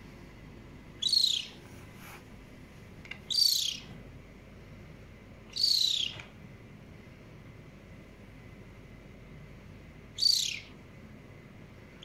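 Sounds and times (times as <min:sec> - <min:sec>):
kitten chirping: 0:01.0 - 0:01.6, 0:03.2 - 0:03.9, 0:05.5 - 0:06.3, 0:10.2 - 0:10.8.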